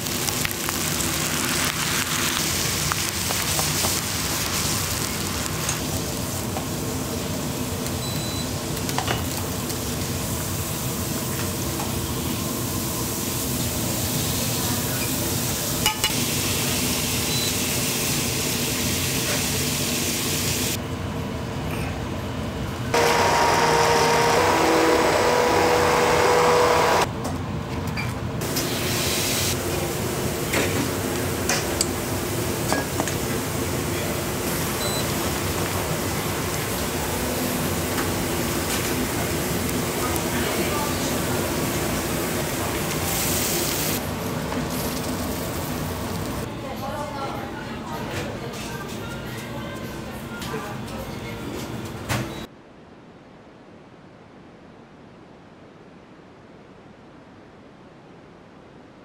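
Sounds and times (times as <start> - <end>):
food sizzling: 0.0 - 20.8, 28.4 - 46.5
humming machine: 22.9 - 27.1.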